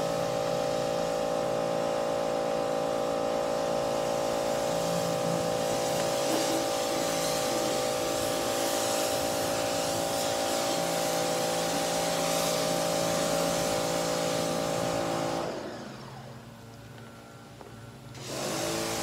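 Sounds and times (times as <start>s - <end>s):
pressure washer motor whining: 0.0s - 19.0s
water spray hissing: 4.0s - 15.0s.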